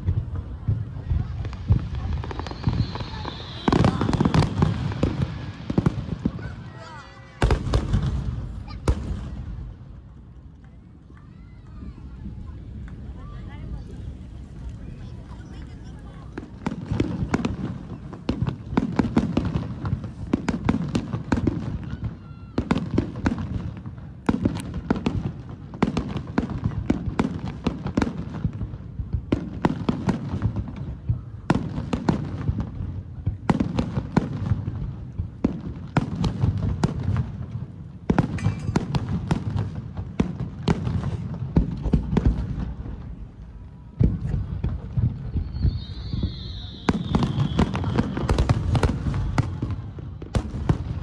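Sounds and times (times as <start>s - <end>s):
firework shells cracking: 38.2s - 39.3s.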